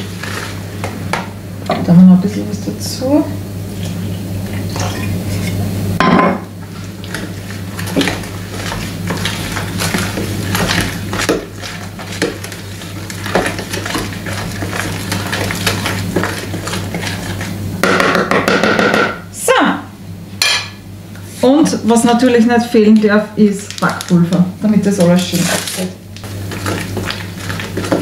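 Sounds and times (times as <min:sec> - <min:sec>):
utensil stirring batter in bowl: 0:06.6 - 0:18.3, 0:24.6 - 0:28.0.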